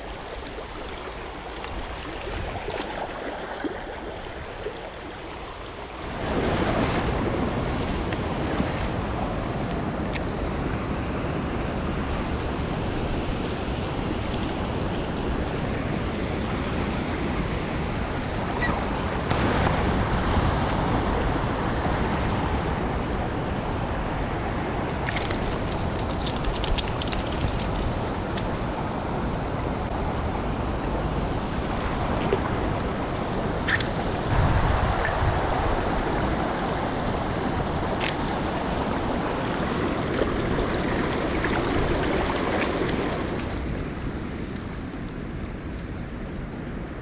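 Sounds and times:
river flowing over stones: 0:00.0 - 0:06.6, 0:31.1 - 0:43.7
wind buffeting microphone: 0:05.9 - 0:47.0.

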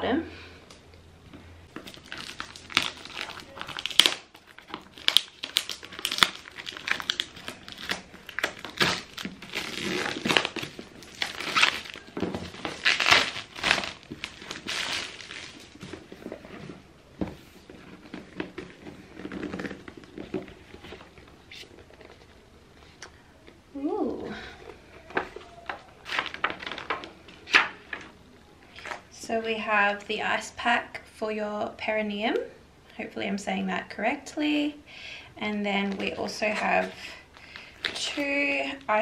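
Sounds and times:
plastic wrapping crinkling: 0:01.7 - 0:23.6, 0:24.6 - 0:28.2, 0:35.5 - 0:39.0.

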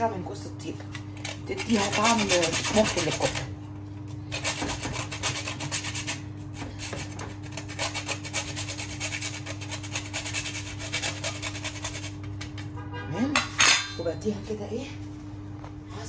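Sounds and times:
nutmeg rasping on metal grater: 0:01.2 - 0:03.6, 0:04.2 - 0:12.7.

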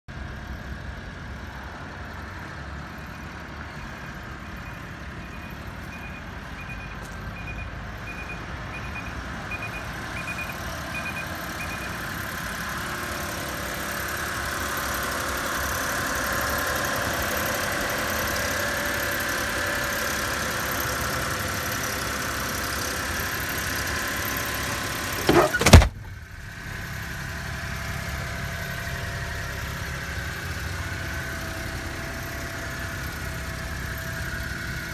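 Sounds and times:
small engine idling: 0:08.8 - 0:34.9
loud sharp thump: 0:25.2 - 0:26.2.

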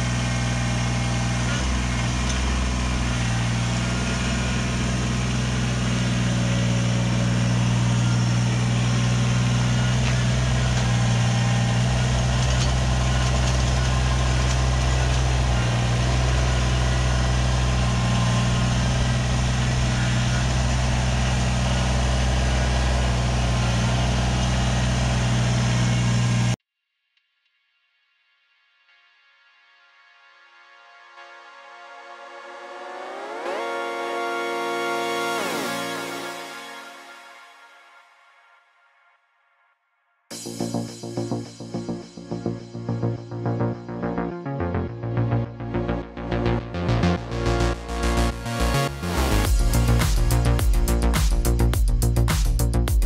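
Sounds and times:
diesel engine running: 0:00.0 - 0:26.6, 0:40.3 - 0:53.0.

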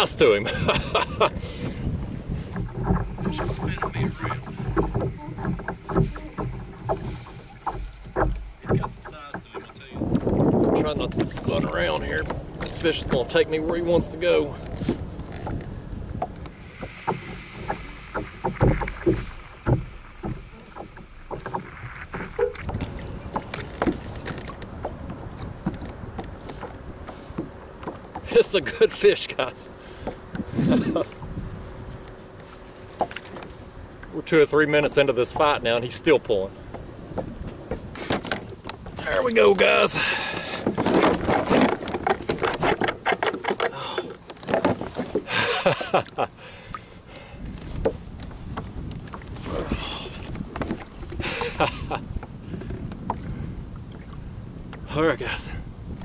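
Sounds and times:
wind and water rumble: 0:00.0 - 0:56.0
kayak and fishing reel knocks: 0:01.2 - 0:14.0, 0:14.6 - 0:29.1, 0:40.3 - 0:45.2.

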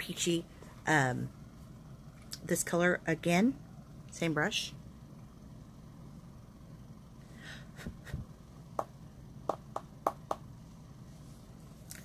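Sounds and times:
low room hum: 0:00.0 - 0:12.0
soft breath: 0:07.2 - 0:07.8.

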